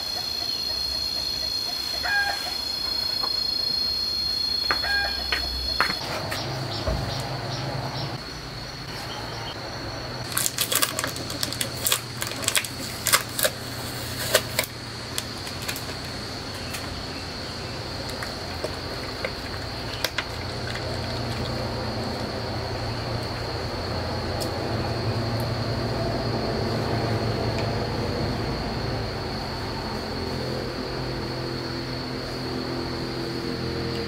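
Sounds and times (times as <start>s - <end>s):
plastic bottle clicking and crackling: 10.3s - 16.1s.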